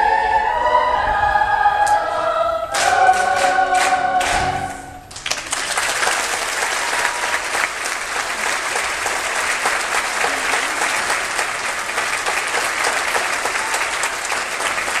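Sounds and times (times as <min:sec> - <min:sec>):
audience applauding: 0:02.8 - 0:04.5, 0:05.1 - 0:15.0.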